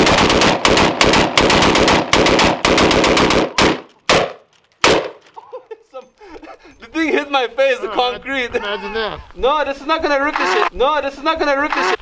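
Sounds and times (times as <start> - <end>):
rifles firing rapid shots: 0.0 - 5.2
single gunshots: 0.0 - 5.2.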